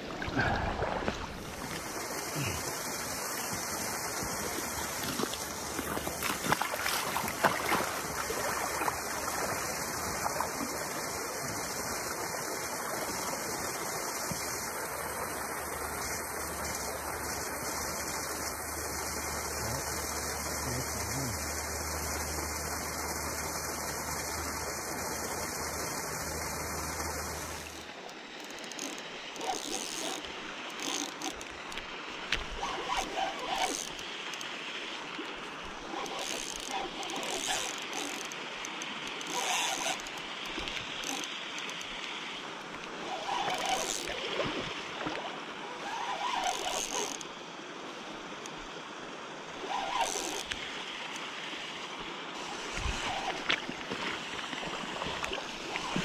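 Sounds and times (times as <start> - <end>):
steady hiss: 1.5 - 5.8
fishing reel whirring and clicking: 24.6 - 31.8, 32.7 - 34.5, 35.9 - 41.9, 43.2 - 44.2, 45.8 - 47.3, 49.7 - 50.6.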